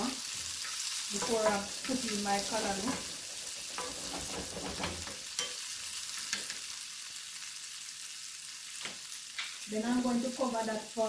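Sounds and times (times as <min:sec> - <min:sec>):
frying crackles: 0:00.0 - 0:11.0
vegetables sizzling in hot oil: 0:00.0 - 0:11.0
wooden spoon stirring and scraping: 0:00.7 - 0:05.2.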